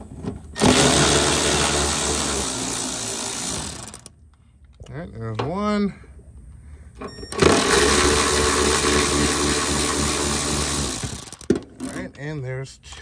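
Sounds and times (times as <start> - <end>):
electric ratchet running: 0.6 - 4.1, 7.3 - 11.5.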